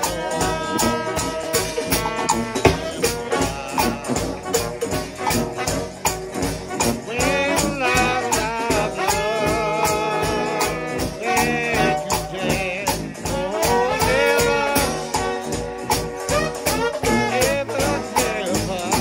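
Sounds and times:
brass band playing gospel: 0:00.0 - 0:19.0
bass drum and snare beat: 0:01.6 - 0:04.7.

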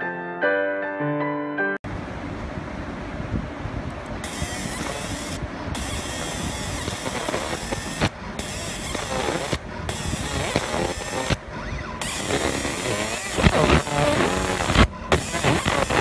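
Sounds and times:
laser engraver crackling hiss: 0:04.2 - 0:16.0.

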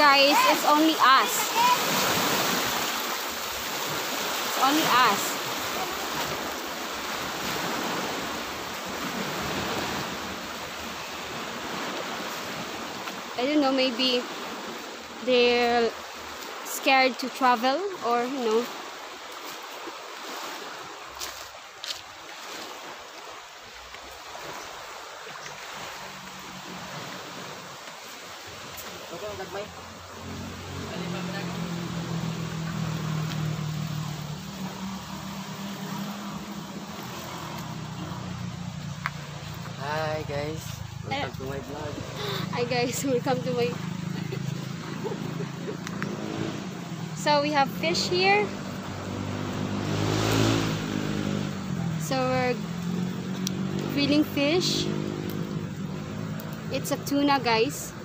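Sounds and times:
faint outdoor hiss: 0:00.0 - 0:58.0
sea surf rushing: 0:00.0 - 0:58.0
wind: 0:00.0 - 0:58.0.

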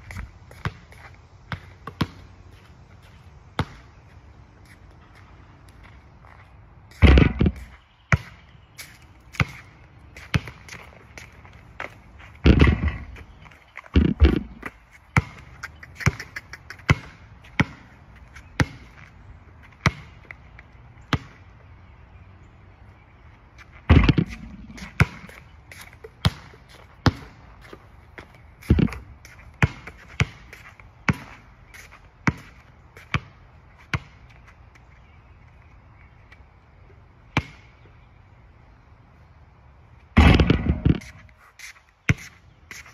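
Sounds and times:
basketball bouncing on hard court: 0:00.5 - 0:00.9, 0:01.5 - 0:02.3, 0:03.6 - 0:03.9, 0:07.0 - 0:08.4, 0:10.3 - 0:10.8, 0:11.8 - 0:16.2, 0:16.8 - 0:18.0, 0:18.6 - 0:19.0, 0:19.7 - 0:20.3, 0:21.1 - 0:21.4, 0:23.9 - 0:25.4, 0:26.1 - 0:27.4, 0:28.6 - 0:30.5, 0:31.1 - 0:31.4, 0:32.2 - 0:34.2, 0:37.4 - 0:37.7, 0:40.2 - 0:41.2
heavy basketball thuds: 0:07.0 - 0:07.6, 0:12.4 - 0:13.3, 0:13.9 - 0:15.4, 0:23.9 - 0:25.3, 0:40.2 - 0:41.0.

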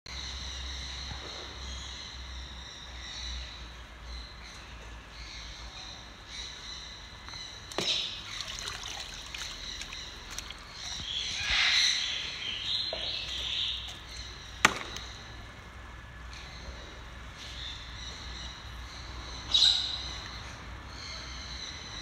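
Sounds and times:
water splashing in a plastic tub: 0:07.7 - 0:12.1
sharp knocks: 0:14.6 - 0:15.1.

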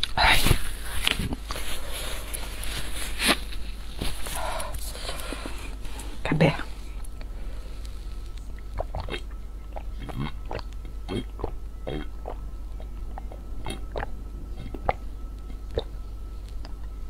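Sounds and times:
person gulping a drink: 0:08.6 - 0:15.9.

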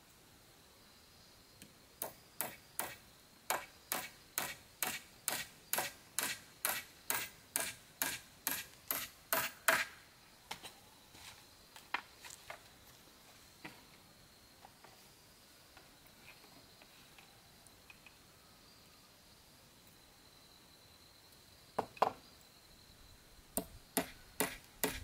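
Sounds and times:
hammer striking nail into wood: 0:02.0 - 0:09.9, 0:23.6 - 0:25.0.

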